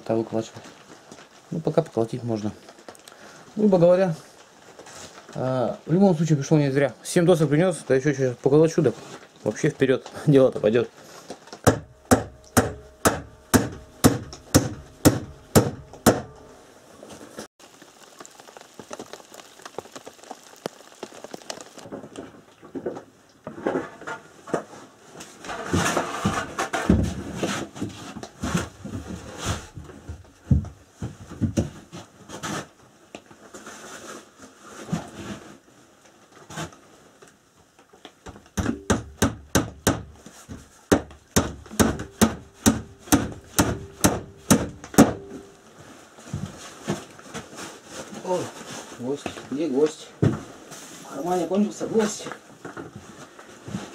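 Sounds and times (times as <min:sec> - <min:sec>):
hammer driving nails into wood: 0:11.6 - 0:16.4, 0:38.6 - 0:40.2, 0:40.9 - 0:45.2.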